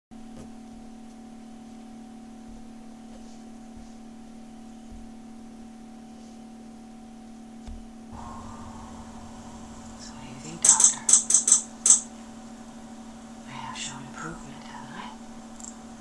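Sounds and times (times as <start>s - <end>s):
electrical mains hum: 0.2s - 16.0s
faint hiss: 8.2s - 16.0s.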